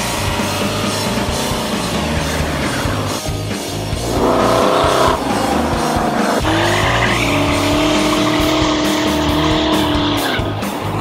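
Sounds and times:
background music with steady beat: 0.0 - 11.0
car engine revving: 0.0 - 11.0
tyres squealing: 4.4 - 10.4.

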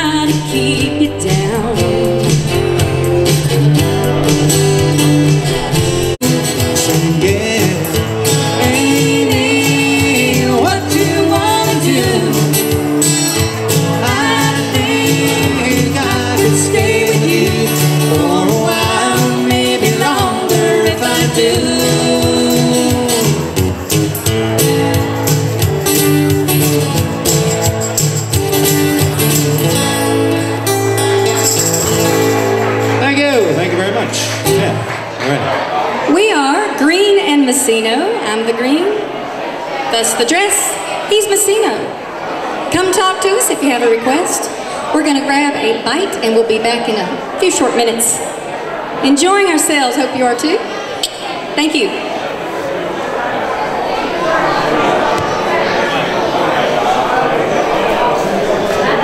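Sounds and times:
people singing into microphones: 0.0 - 5.8, 6.6 - 23.7
amplified acoustic guitar: 0.0 - 59.0.

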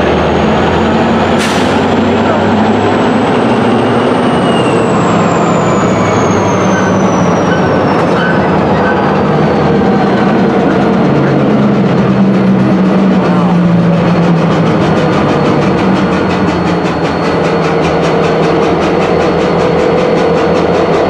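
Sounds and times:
high wheel squeal: 0.0 - 21.0
train wheels rumbling on rail: 0.0 - 21.0.

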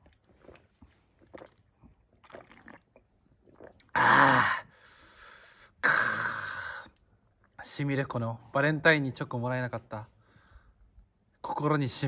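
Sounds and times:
person swallowing: 0.3 - 4.7
breathy exhale: 4.6 - 6.9.

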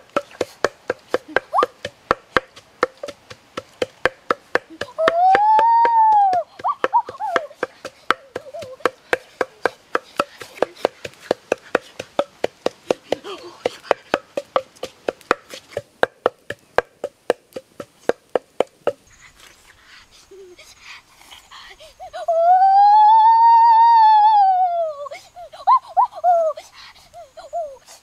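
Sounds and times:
pestle pounding in mortar: 0.0 - 19.0
child exclaiming: 4.8 - 7.5, 22.2 - 26.6.

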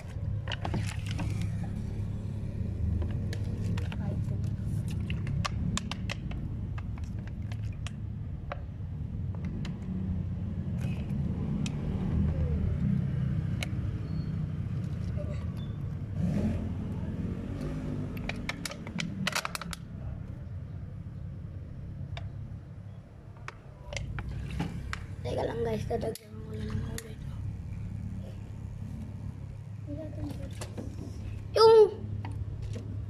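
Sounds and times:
plastic bottles crackling: 0.4 - 1.8
steady low rumble: 19.2 - 33.0.

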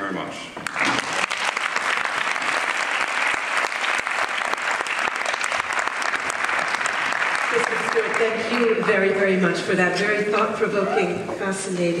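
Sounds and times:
audience applauding: 0.6 - 9.4.

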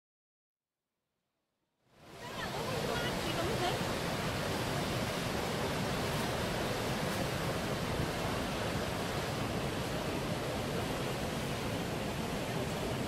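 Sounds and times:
whitewater rapids rushing: 2.0 - 13.0.

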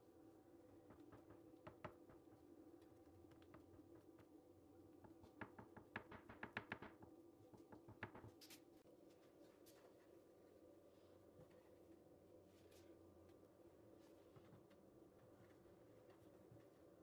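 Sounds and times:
fingertips tapping dough on board: 0.8 - 4.4, 5.0 - 8.4.

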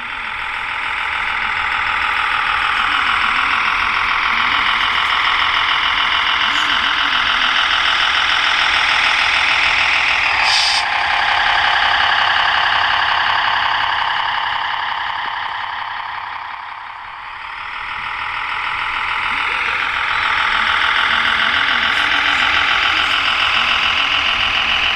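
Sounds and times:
simulated diesel engine from speaker: 0.0 - 24.9
brief hiss: 10.4 - 10.8.

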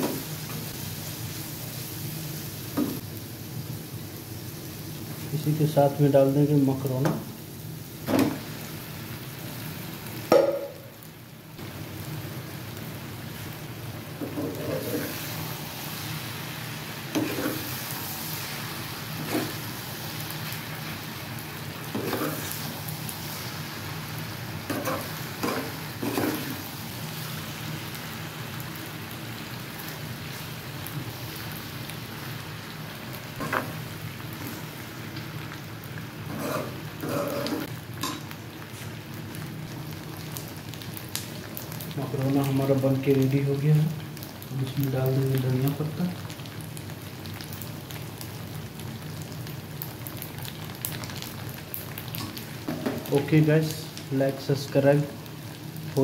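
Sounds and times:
food sizzling in a pan: 0.0 - 56.0
metal spoon scraping a pan: 17.2 - 17.7, 19.2 - 19.6, 22.0 - 22.6, 24.7 - 26.5, 36.3 - 38.2.

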